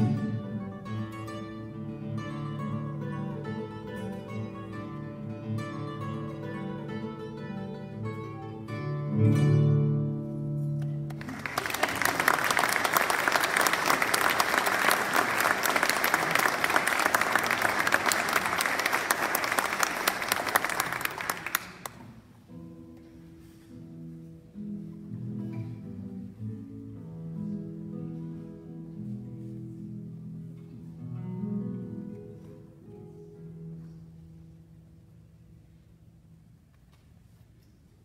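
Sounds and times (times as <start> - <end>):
classical guitar playing: 0.0 - 12.5, 20.8 - 36.6
audience applauding: 11.1 - 22.2.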